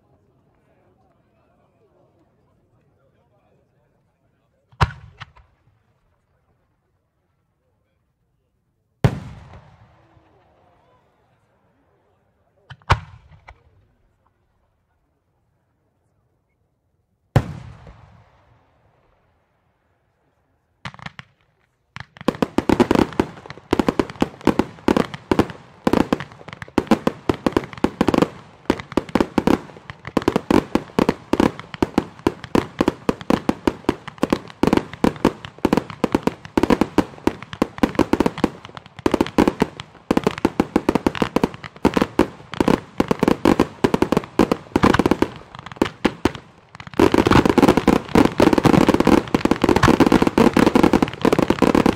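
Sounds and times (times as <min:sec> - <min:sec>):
rapid-fire fireworks barrage: 0:04.7 - 0:05.7, 0:12.7 - 0:14.2, 0:20.8 - 0:51.9
fireworks bang: 0:26.1 - 0:51.9.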